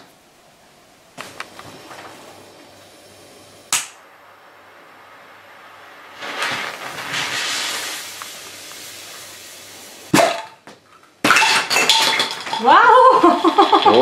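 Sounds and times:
firework fuse hissing: 1.2s - 10.2s.

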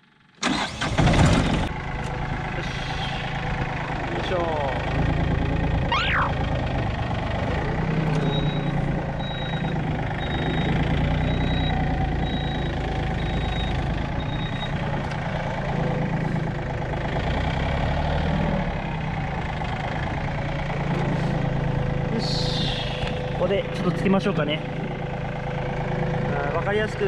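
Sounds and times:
tractor diesel engine running: 0.0s - 27.0s
high electronic beep: 8.3s - 14.8s.

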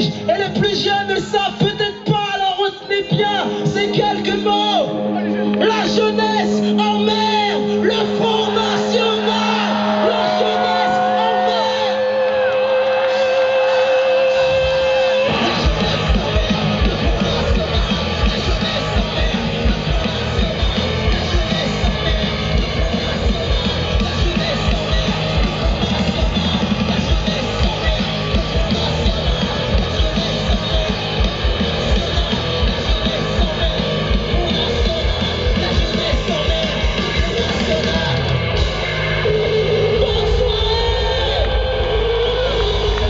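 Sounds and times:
punk rock band playing live: 0.0s - 43.0s
yelled singing: 2.9s - 43.0s
driving drum beat: 13.1s - 43.0s.

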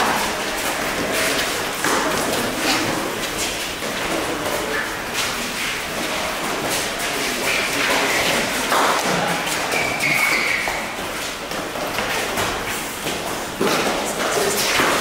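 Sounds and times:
trainers squeaking on court floor: 9.6s - 11.2s.

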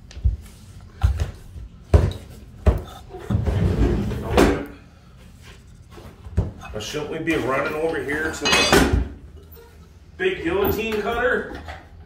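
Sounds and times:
rough scraping on floor: 3.3s - 4.4s.

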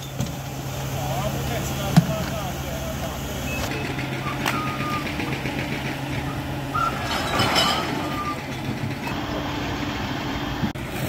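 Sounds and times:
hydraulic crane working: 0.0s - 11.0s
truck engine running: 0.0s - 11.0s
short high beeps: 3.4s - 5.3s
debris clattering: 3.7s - 9.2s.

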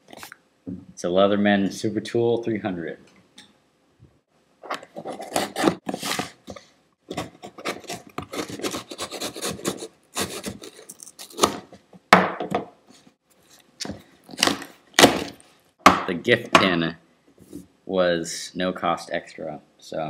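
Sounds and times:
wrapping paper tearing and rustling: 7.5s - 11.5s.

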